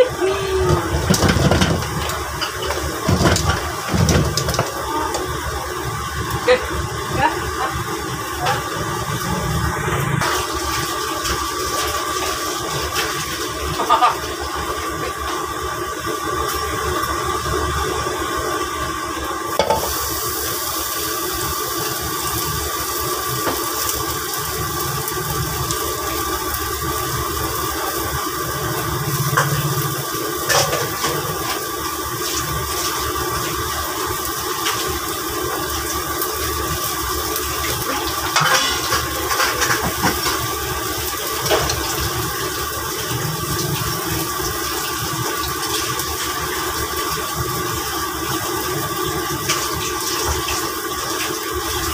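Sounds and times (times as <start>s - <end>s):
gas burner roaring: 0.0s - 51.9s
metal utensils clinking on pan: 37.9s - 40.5s.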